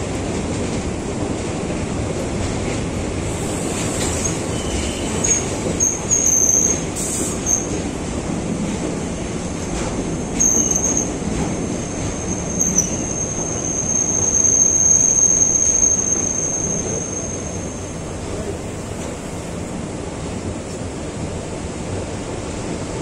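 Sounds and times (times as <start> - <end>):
train wheels rumbling on track: 0.0 - 23.0
high wheel squeal: 3.4 - 7.8, 10.3 - 18.2.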